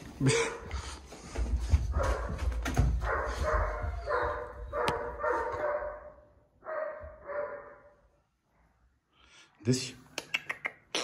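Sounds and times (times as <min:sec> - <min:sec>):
puppy barking: 0:01.9 - 0:08.0.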